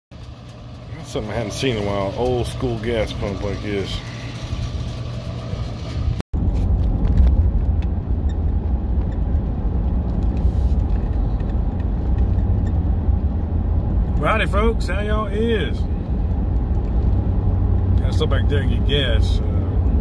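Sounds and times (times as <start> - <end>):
truck engine and tyre rumble: 0.1 - 20.0.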